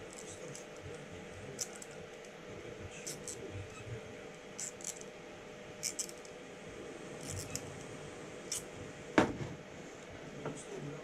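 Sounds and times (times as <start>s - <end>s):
loud knock: 9.2s - 9.6s.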